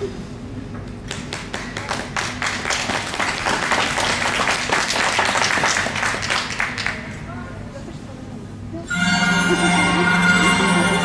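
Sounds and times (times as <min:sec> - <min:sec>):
audience clapping: 0:01.0 - 0:07.2.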